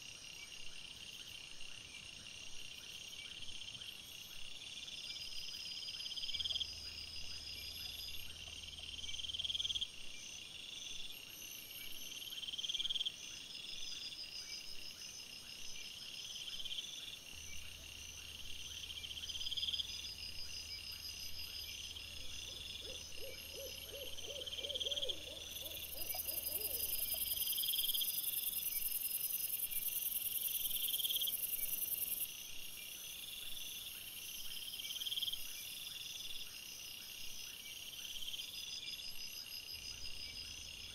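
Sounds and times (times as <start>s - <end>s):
insects chirping: 0.1s - 40.9s
insect trills: 16.3s - 40.9s
low pulsed animal calls: 21.6s - 27.8s.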